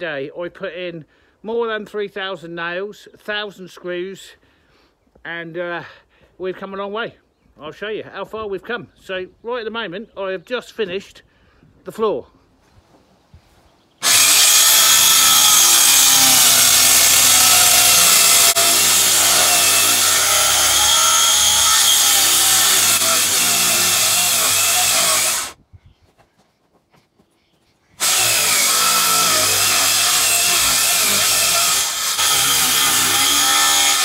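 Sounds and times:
power saw cutting timber: 14.0s - 25.6s, 28.0s - 34.0s.

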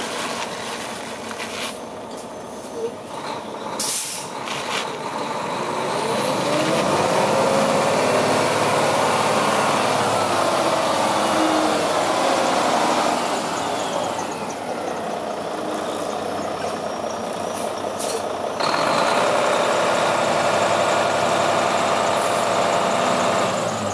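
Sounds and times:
brief air hiss: 3.8s - 4.3s
diesel truck engine idling: 7.1s - 23.9s.

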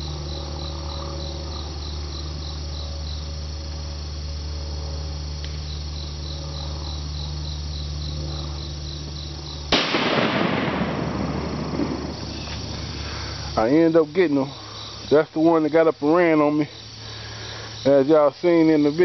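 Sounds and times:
insects chirping: 0.0s - 19.0s
gunshot with echo: 9.7s - 12.1s.

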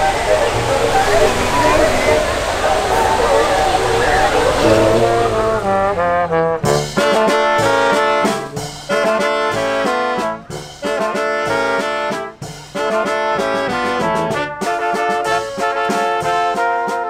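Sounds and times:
brass band playing: 0.0s - 17.0s
bass and snare drums: 4.6s - 17.0s.

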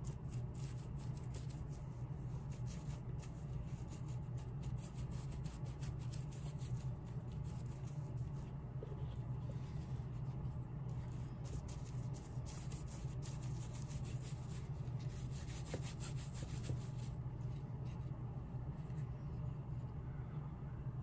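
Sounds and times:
steady low hum: 0.0s - 21.0s
scratchy rubbing on shoe sole: 2.4s - 18.0s.

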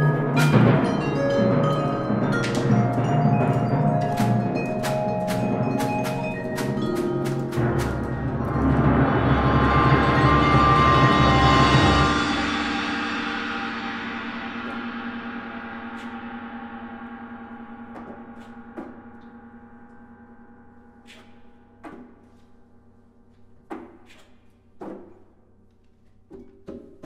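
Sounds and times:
large gong ringing: 0.0s - 17.9s
light percussion strikes: 0.0s - 22.7s.

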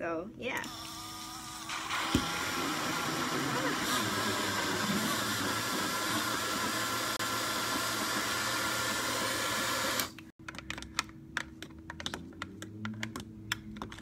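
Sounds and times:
portable blender running: 0.7s - 10.3s.

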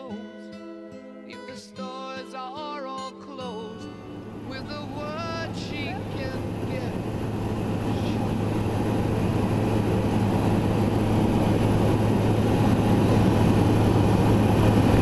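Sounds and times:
aircraft engine drone: 3.9s - 15.0s
wind roar: 4.2s - 15.0s.

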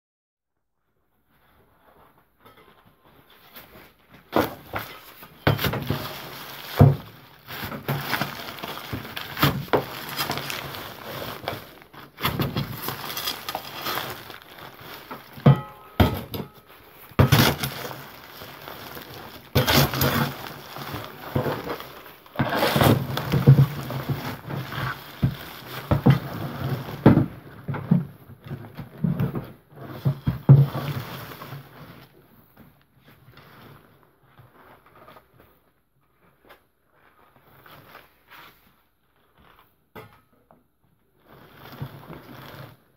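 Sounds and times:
spade rustling plastic bags in bin: 3.2s - 32.2s, 41.3s - 42.9s.

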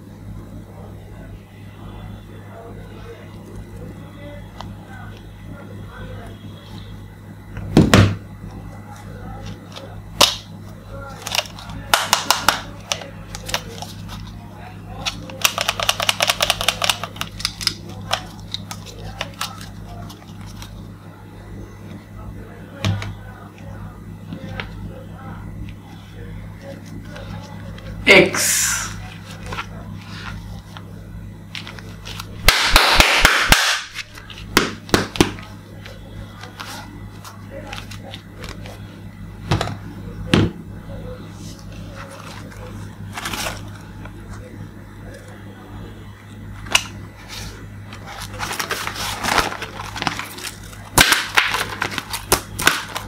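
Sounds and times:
plastic toy handling: 11.1s - 20.8s, 41.6s - 44.4s, 46.6s - 53.0s
stiff plastic scraping and crackling: 41.7s - 44.4s, 46.6s - 53.0s
rubbing and rustling: 47.1s - 50.8s.

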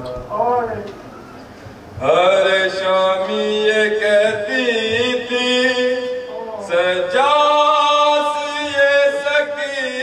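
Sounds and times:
man chanting into microphone: 2.0s - 10.0s.

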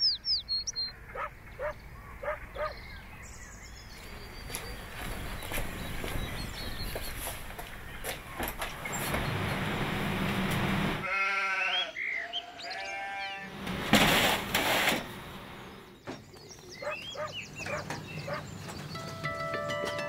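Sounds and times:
sheep bleating: 11.0s - 13.6s.

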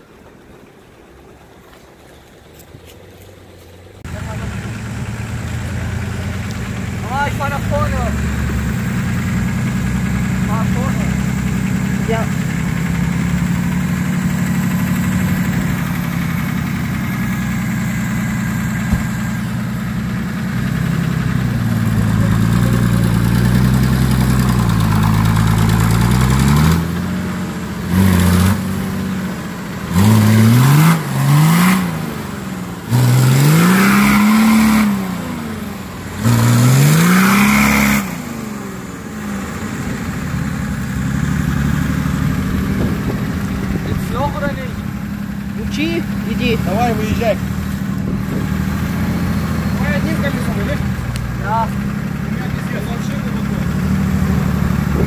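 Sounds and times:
off-road vehicle engine revving: 2.4s - 55.0s.

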